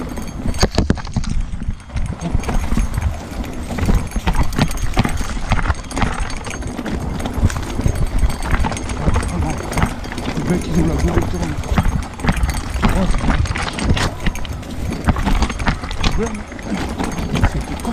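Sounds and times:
bike clattering on rocks: 0.0s - 17.9s
tyres crunching over stones: 0.0s - 17.9s.

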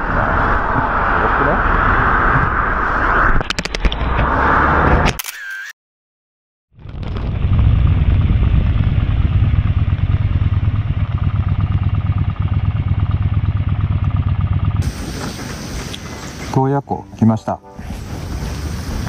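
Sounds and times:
motorcycle engine rumble: 6.8s - 16.6s.

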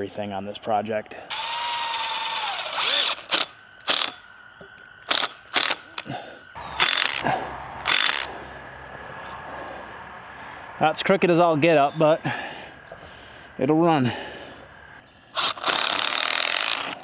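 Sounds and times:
power driver short bursts: 1.3s - 4.2s, 15.4s - 17.0s
power driver whine: 1.3s - 13.8s.

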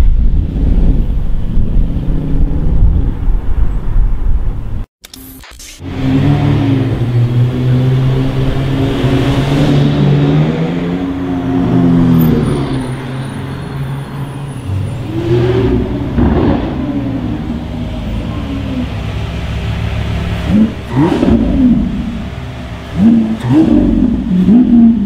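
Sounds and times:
second car engine revving: 5.8s - 13.0s, 14.9s - 25.0s
car engine pulling away: 5.8s - 25.0s.

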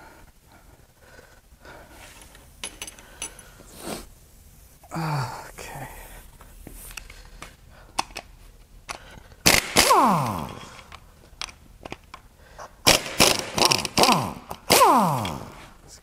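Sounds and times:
impact wrench hammering on a bolt: 9.4s - 10.6s, 12.9s - 15.4s.

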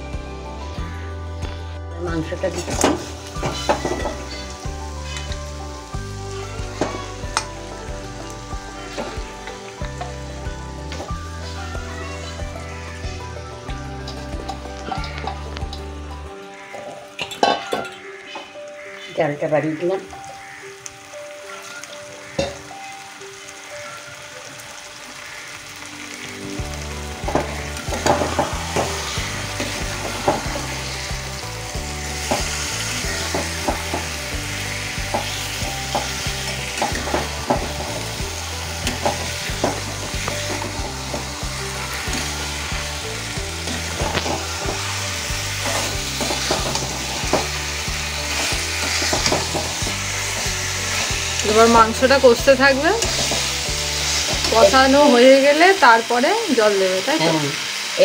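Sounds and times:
chicken sizzling in a pan: 0.0s - 58.0s
metal spatula scraping a pan: 2.6s - 5.6s, 27.2s - 31.4s, 32.0s - 42.8s, 43.6s - 55.0s.

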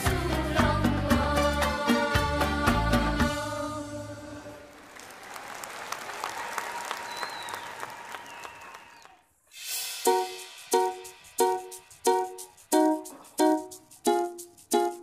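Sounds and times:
applause: 4.6s - 9.4s
song playing: 10.0s - 15.0s
plucked-string tune: 12.1s - 15.0s.

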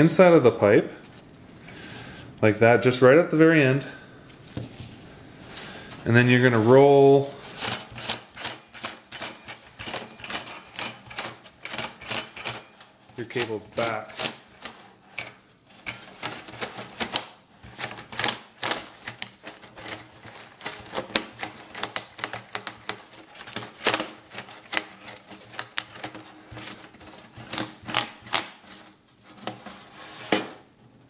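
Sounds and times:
metal foil crinkling and clicking: 7.5s - 29.8s.

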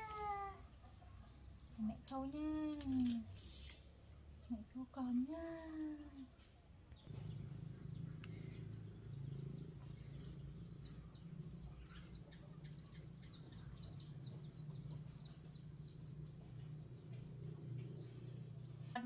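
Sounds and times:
steady low hum: 4.0s - 19.0s.

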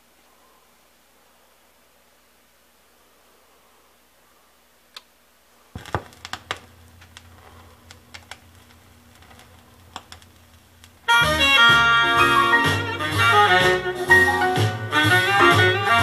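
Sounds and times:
low steady speaker hum: 0.0s - 16.0s
vinyl record crackles and pops: 4.9s - 16.0s
stylus landing thump: 5.8s - 6.7s.

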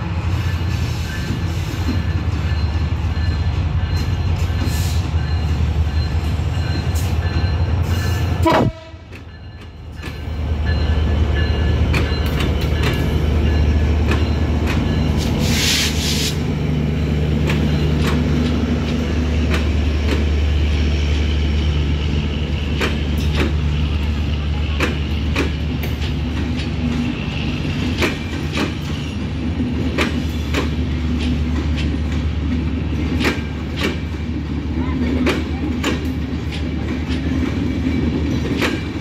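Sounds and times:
diesel locomotive engine passing: 0.0s - 39.0s
train wheels clicking over rail joints: 0.3s - 39.0s
high hiss burst: 15.2s - 16.4s.

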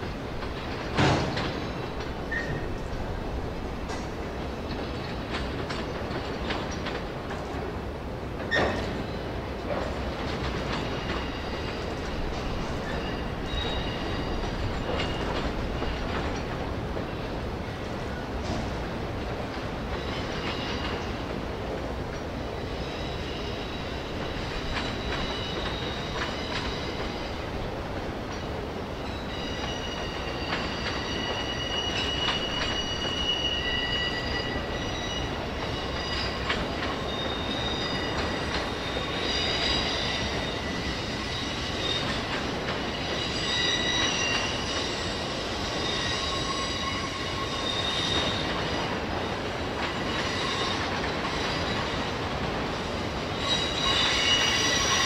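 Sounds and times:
train wheels rumbling on rail: 0.0s - 55.0s
high-pitched wheel squeal: 29.1s - 48.9s, 50.0s - 51.8s, 53.4s - 55.0s.

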